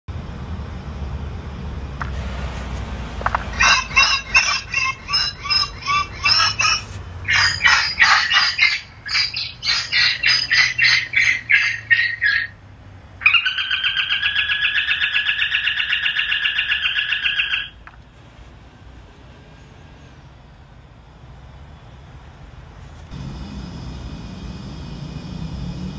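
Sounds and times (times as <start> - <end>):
buzzing alarm tone: 3.5 - 12.1, 23.1 - 25.9
seagull distress calls over loudspeakers: 3.5 - 12.6, 13.2 - 17.8.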